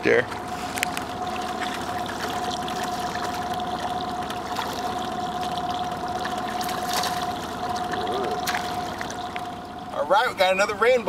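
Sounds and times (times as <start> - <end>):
water trickling and sloshing: 0.2 - 11.0
thin motor whine: 0.5 - 11.0
fish splashing at surface: 0.6 - 9.8.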